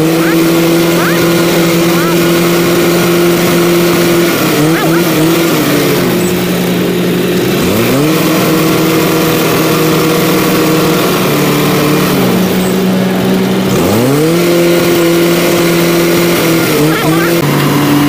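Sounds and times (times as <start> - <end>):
tractor diesel engine revving: 0.0 - 18.0.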